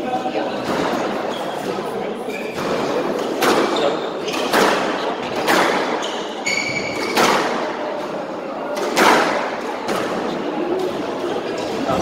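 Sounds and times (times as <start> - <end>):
squash ball cracking off racquets: 2.5 - 6.0, 6.8 - 8.1, 8.7 - 11.0
shoe squeaking on wooden floor: 5.9 - 7.2.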